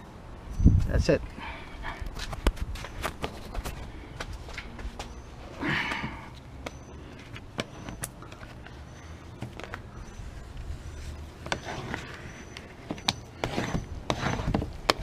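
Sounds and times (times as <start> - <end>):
scraping rustles: 7.0 - 15.0.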